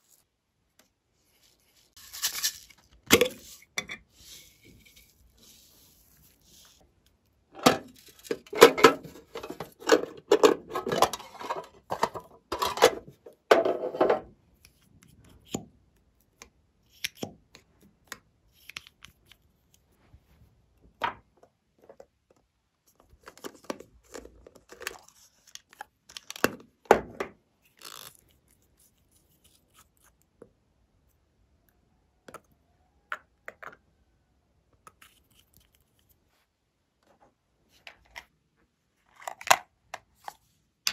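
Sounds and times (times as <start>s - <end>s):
rustling and crunching: 1.2s - 14.3s.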